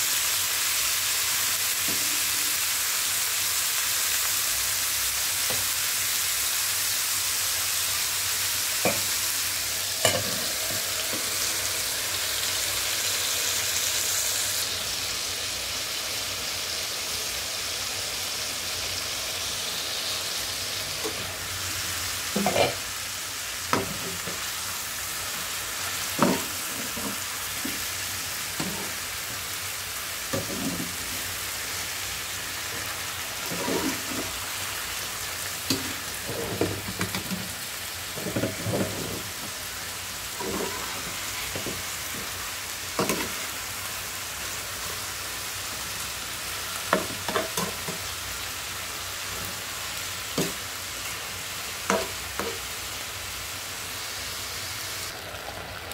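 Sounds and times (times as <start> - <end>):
meat sizzling in a frying pan: 0.0 - 55.9
metal spatula scraping pan: 22.4 - 22.8, 32.8 - 34.4, 40.4 - 42.2.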